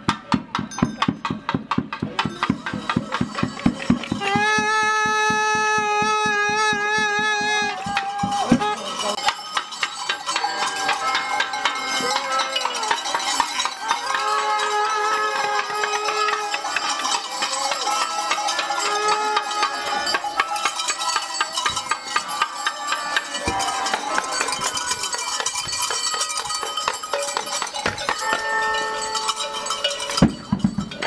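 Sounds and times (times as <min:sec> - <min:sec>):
sticks clanging on frying pans: 0:08.0 - 0:14.7.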